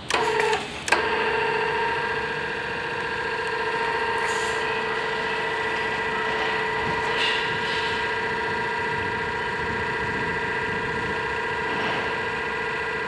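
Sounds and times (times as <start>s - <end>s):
actuator click: 0.0s - 4.7s
gate actuator whining: 0.0s - 13.0s.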